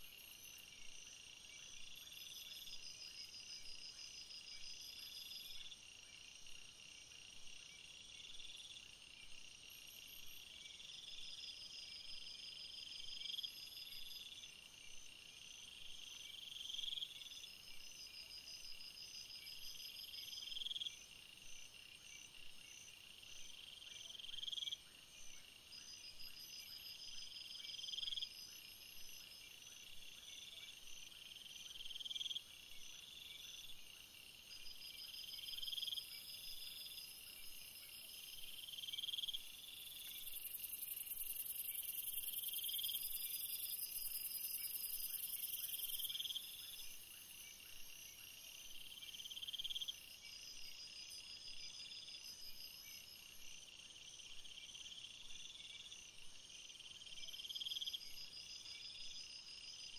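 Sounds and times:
insects chirping: 0.0 - 59.9
pulsing insect trills: 31.4 - 56.0.

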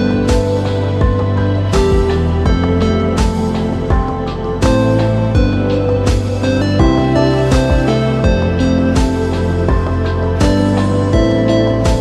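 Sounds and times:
background music with held notes: 0.0 - 12.0
gentle steady beat: 0.0 - 12.0.

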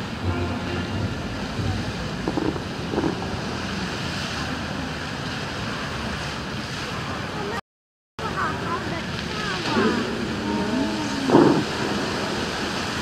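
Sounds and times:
fountain jets splashing: 0.0 - 7.6, 8.2 - 13.0
wind buffeting microphone: 1.6 - 4.8, 9.0 - 13.0.

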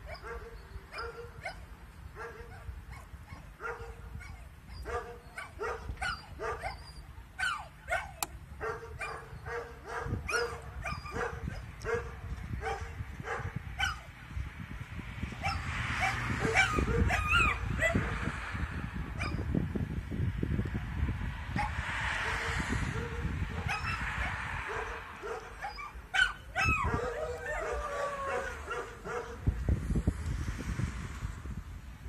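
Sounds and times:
puppy barking and yipping: 0.0 - 14.1, 15.4 - 18.2, 19.2 - 19.4, 21.6 - 29.4.

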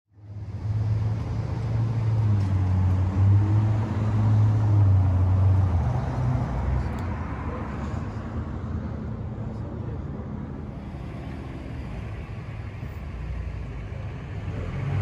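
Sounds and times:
engine running steadily: 6.5 - 15.0.

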